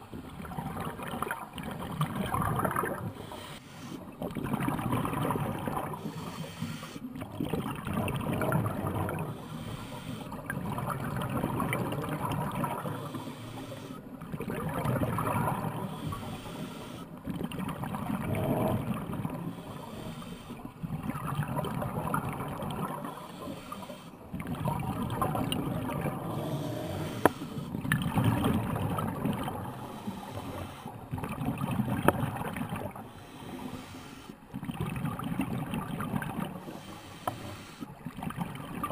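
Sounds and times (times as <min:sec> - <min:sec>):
gurgling exhaled bubbles: 0:00.0 - 0:03.3, 0:04.0 - 0:06.4, 0:07.0 - 0:09.6, 0:10.2 - 0:13.3, 0:14.0 - 0:16.4, 0:17.2 - 0:33.8, 0:34.4 - 0:36.9, 0:37.9 - 0:38.9
diver breathing through regulator: 0:02.6 - 0:04.2, 0:05.2 - 0:07.2, 0:08.3 - 0:10.6, 0:12.0 - 0:14.2, 0:15.1 - 0:17.2, 0:18.2 - 0:20.9, 0:21.8 - 0:27.8, 0:29.5 - 0:31.2, 0:32.0 - 0:34.7, 0:36.4 - 0:38.0.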